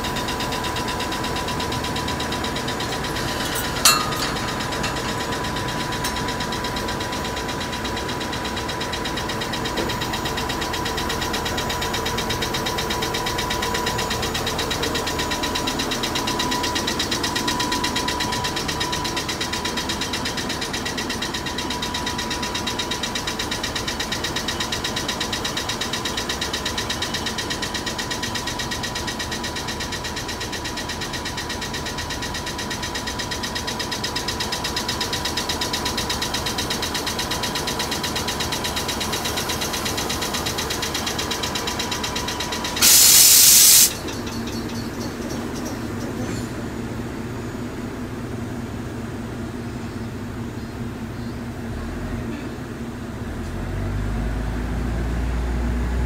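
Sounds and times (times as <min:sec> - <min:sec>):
locomotive machinery clattering: 0:00.0 - 0:27.6, 0:31.9 - 0:47.1
loud blast of air: 0:42.8 - 0:44.0.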